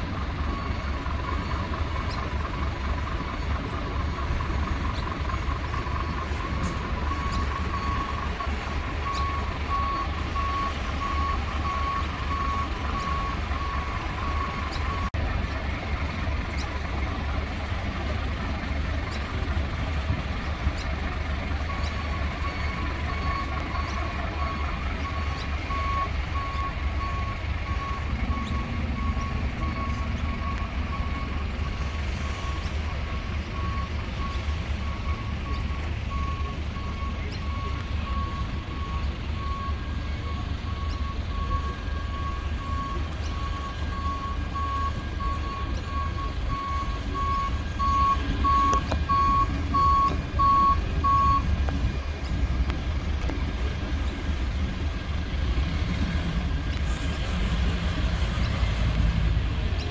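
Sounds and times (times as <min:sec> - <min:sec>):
reversing alarm beeping: 0:00.0 - 0:15.1, 0:20.8 - 0:51.6
diesel engine rumble: 0:00.0 - 0:59.9.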